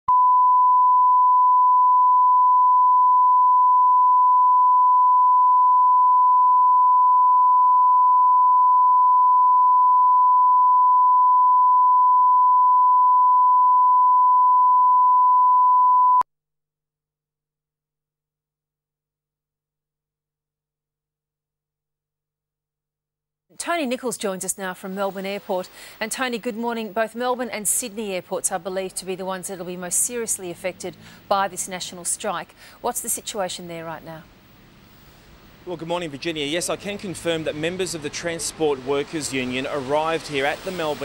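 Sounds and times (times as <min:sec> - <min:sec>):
steady reference tone beep: 0:00.1 - 0:16.2.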